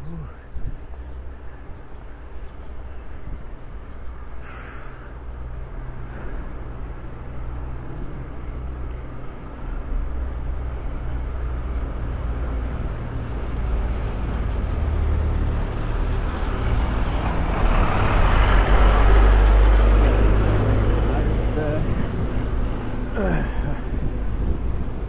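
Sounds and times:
road traffic rumble: 0:00.0 - 0:25.0
motor vehicle approaching: 0:00.2 - 0:25.0.

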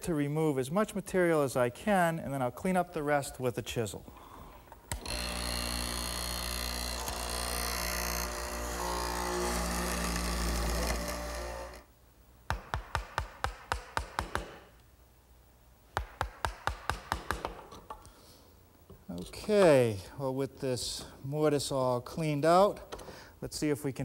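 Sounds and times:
mortiser running: 0:05.0 - 0:11.8.

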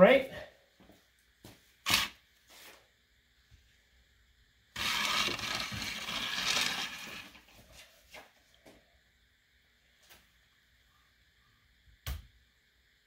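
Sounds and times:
chalk line reel whirring: 0:01.8 - 0:02.2, 0:04.8 - 0:07.4.

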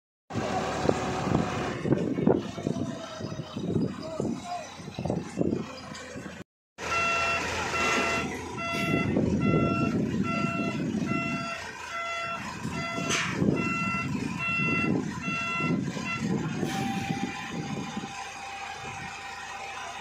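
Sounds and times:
loader engine working: 0:00.3 - 0:20.0
backup alarm beeping: 0:06.9 - 0:16.3.

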